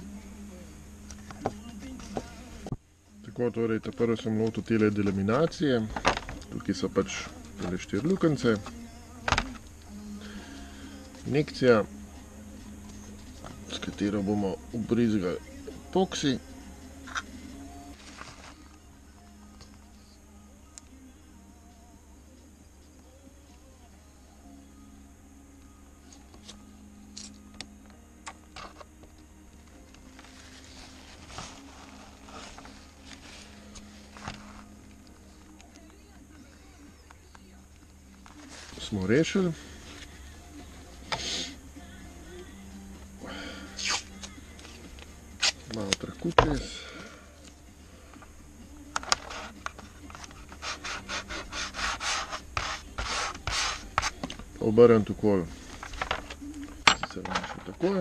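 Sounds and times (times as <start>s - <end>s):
fingers rubbing tape: 43.8s - 44.4s, 49.0s - 54.2s.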